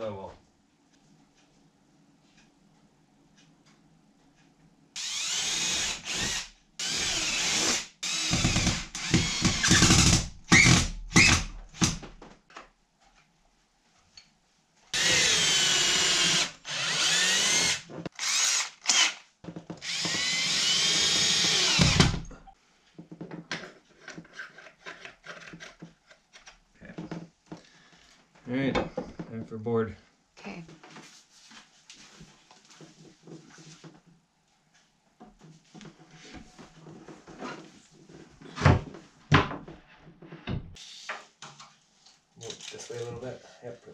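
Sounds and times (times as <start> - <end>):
cordless drill drilling into wood: 5.0 - 11.9, 15.0 - 19.2, 19.8 - 22.2.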